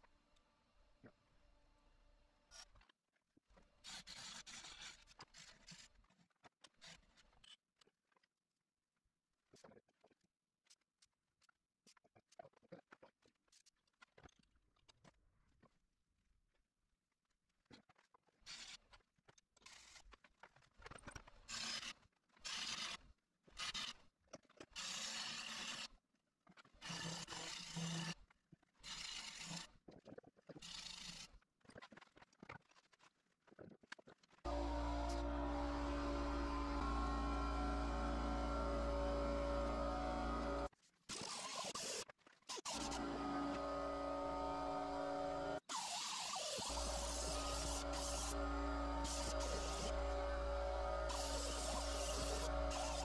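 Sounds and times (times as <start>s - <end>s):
gouge scraping spinning wood: 34.5s - 40.7s, 42.6s - 45.6s, 46.6s - 53.0s.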